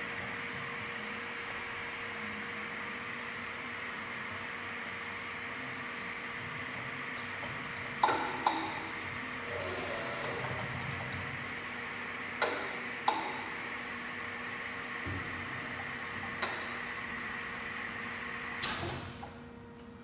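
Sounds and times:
vacuum lifter hissing: 9.2s - 12.0s.

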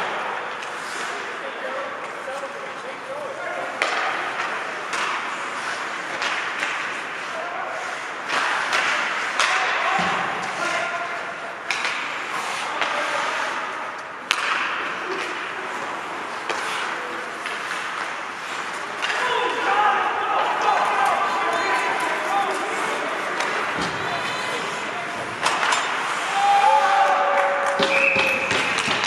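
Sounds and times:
skate blades scraping ice: 0.1s - 2.8s, 3.7s - 9.6s, 10.4s - 19.8s, 20.6s - 27.1s
puck striking boards: 3.8s - 7.2s, 8.2s - 19.8s, 20.6s - 29.0s
sticks clacking on puck: 3.8s - 7.3s, 7.9s - 11.0s, 11.6s - 19.8s, 20.6s - 26.7s
players calling out: 18.9s - 28.6s.

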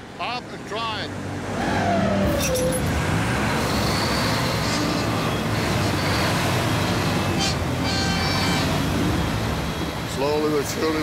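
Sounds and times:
diesel engines under load: 0.0s - 11.0s.

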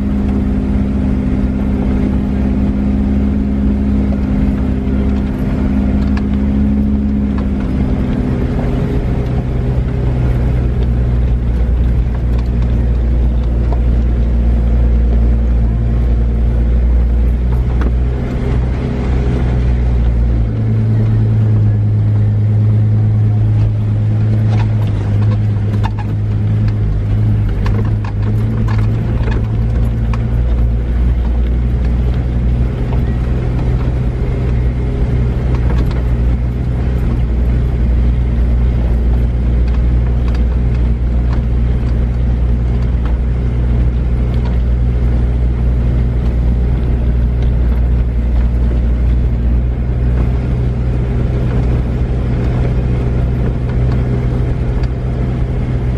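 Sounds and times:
truck engine droning: 0.0s - 55.9s
knocks and rattles from rough ground: 23.3s - 55.2s.

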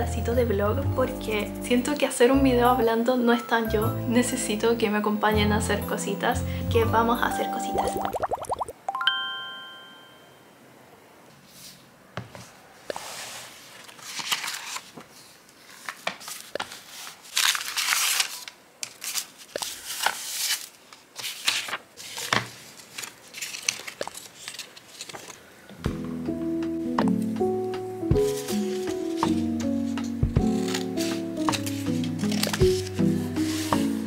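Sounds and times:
music: 0.0s - 8.2s, 25.8s - 34.0s
paper rustling and crinkling: 12.4s - 25.5s, 28.2s - 34.0s
pages turning: 12.9s - 25.5s, 28.2s - 34.0s.

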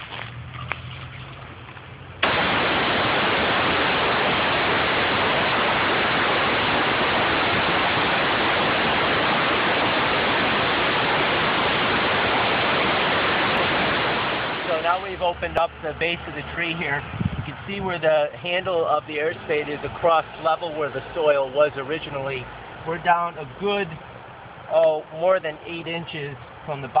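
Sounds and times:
low hum: 0.3s - 17.6s
compressed air blasting soil: 2.2s - 16.8s, 17.6s - 22.2s.

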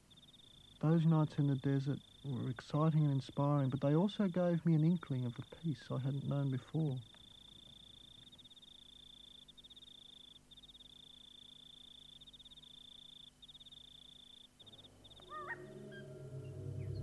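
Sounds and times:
insect trilling: 0.0s - 16.2s
soft music with gliding tones: 14.7s - 17.0s.

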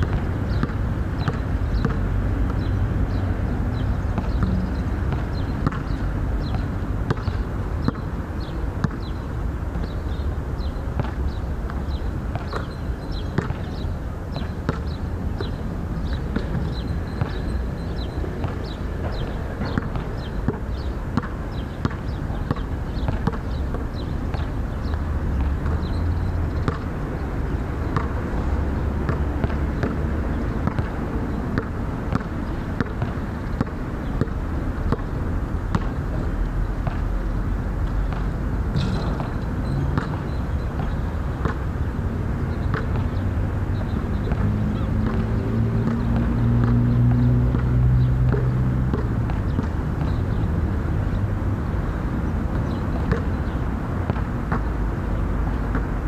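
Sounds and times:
basketball bouncing on hard court: 0.0s - 3.2s, 3.8s - 8.0s, 8.8s - 9.1s, 11.0s - 13.8s, 14.4s - 26.9s, 27.8s - 36.0s, 38.0s - 41.6s, 42.6s - 43.1s, 43.8s - 46.8s, 47.5s - 50.3s, 52.6s - 54.7s, 55.7s - 55.9s.

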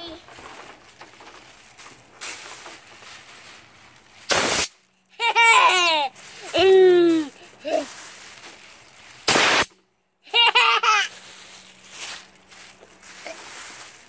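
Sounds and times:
air blow gun hiss: 4.3s - 4.8s, 9.2s - 9.7s
child laughing and squealing: 5.2s - 8.0s, 10.3s - 11.2s.

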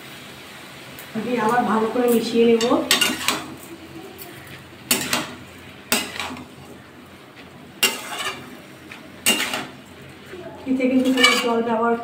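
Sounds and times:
metal spatula scraping wok: 1.9s - 11.7s.

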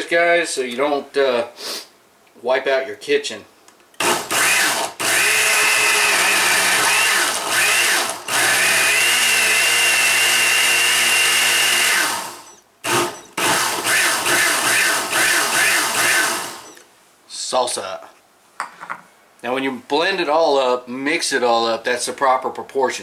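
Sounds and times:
blender motor running: 4.0s - 16.8s.

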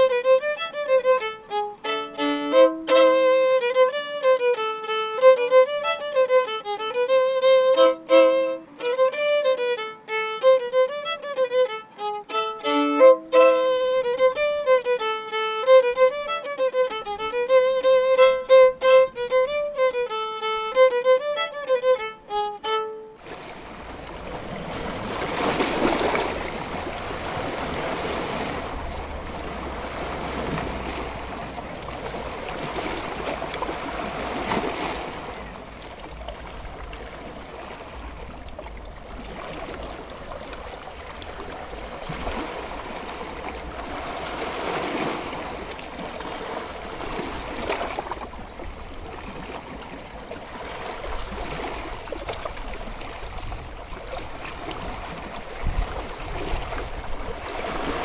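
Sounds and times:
sea surf on rocky shore: 23.2s - 58.0s.

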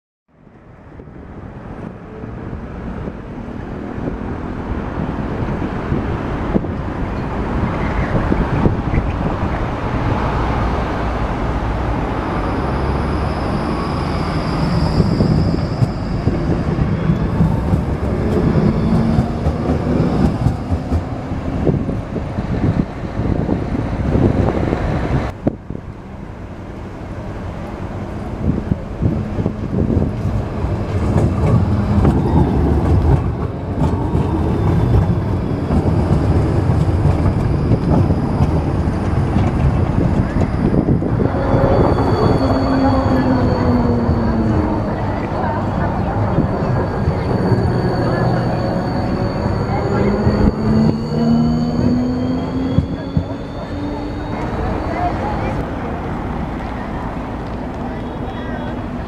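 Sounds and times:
city traffic: 0.3s - 59.0s
tram wheels rumbling: 0.4s - 59.0s
high steady whine: 34.6s - 59.0s.

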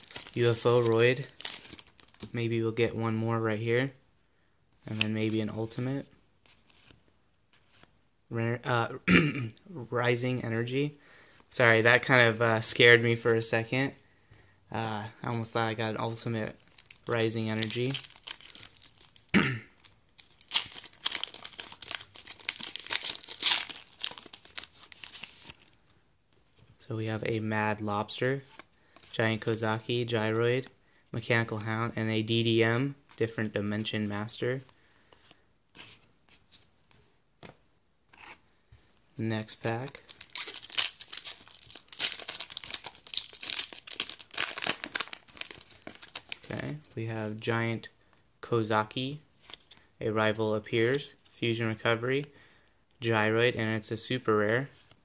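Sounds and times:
foil wrapper tearing and crinkling: 0.0s - 2.2s, 16.6s - 25.6s, 39.8s - 46.5s.

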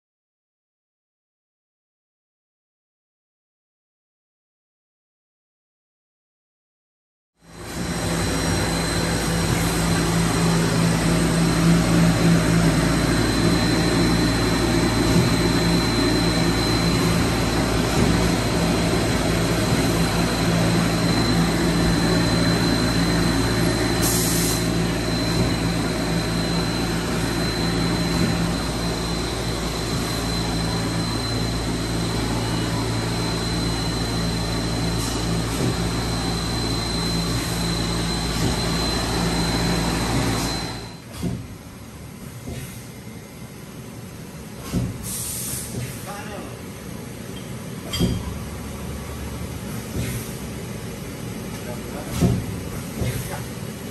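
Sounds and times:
high-pitched whine: 7.5s - 41.0s
lathe running: 7.7s - 41.0s.

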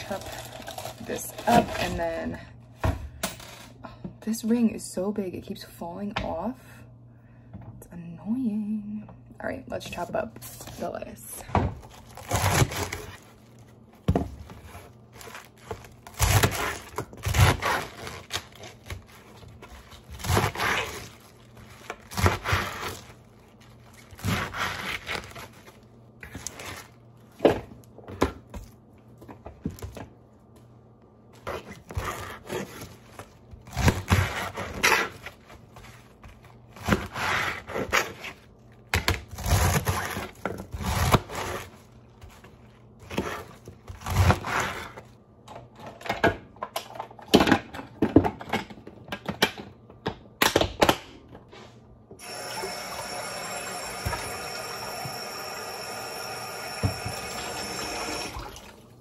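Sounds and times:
knife chopping lettuce: 11.8s - 13.3s, 14.2s - 23.2s, 24.0s - 27.6s, 31.4s - 42.4s, 43.0s - 45.0s.

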